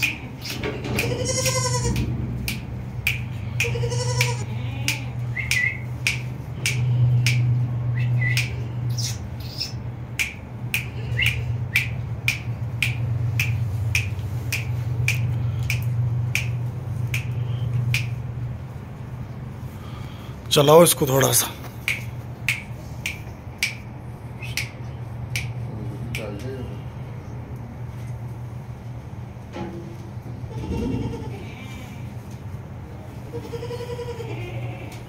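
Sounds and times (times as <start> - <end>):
goat bleating: 0.0 - 2.1, 3.6 - 5.3, 30.5 - 32.1, 33.2 - 35.0
steady low hum: 0.0 - 35.0.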